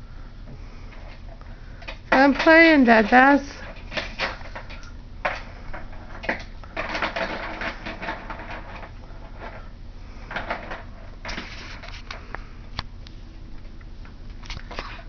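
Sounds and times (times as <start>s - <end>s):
plastic toys clicking and clattering: 1.8s - 9.7s.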